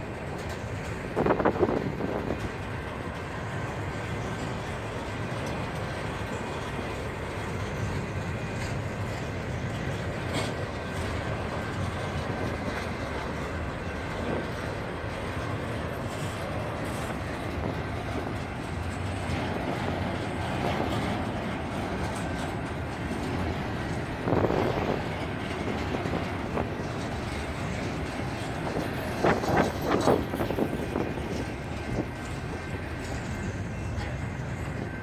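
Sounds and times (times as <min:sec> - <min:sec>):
train cars knocking: 0:00.0 - 0:35.0
train wheels rumbling on rail: 0:00.0 - 0:35.0.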